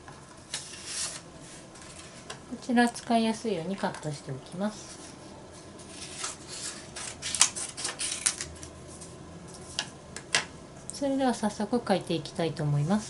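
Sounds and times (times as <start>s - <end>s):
paper sheets being handled: 0.5s - 2.3s, 4.8s - 9.9s.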